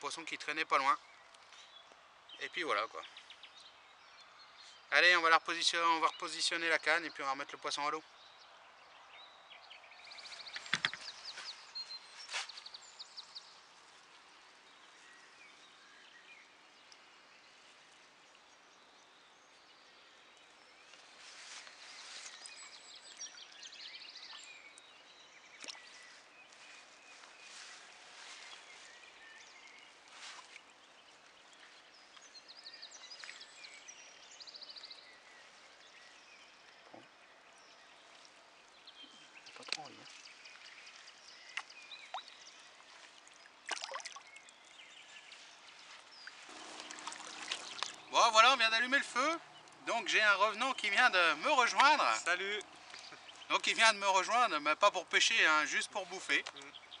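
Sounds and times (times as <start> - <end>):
birds trilling: 46.2 - 57.0.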